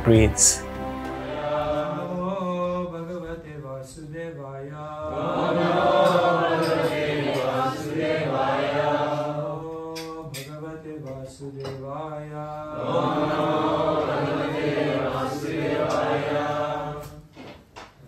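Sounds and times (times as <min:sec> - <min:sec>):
man chanting a prayer: 0:00.0 - 0:00.6.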